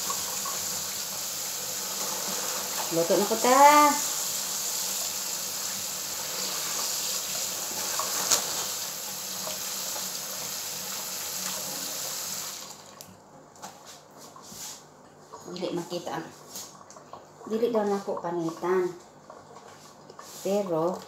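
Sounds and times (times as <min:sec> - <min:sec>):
prawns rinsed in plastic bag: 0:00.0 - 0:10.1
tap water running into sink: 0:00.0 - 0:13.2.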